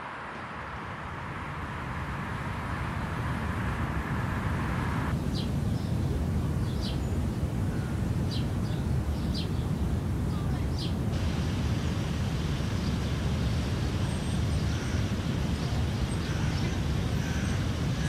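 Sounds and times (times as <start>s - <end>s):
high hiss: 0.0s - 5.7s, 10.8s - 18.0s.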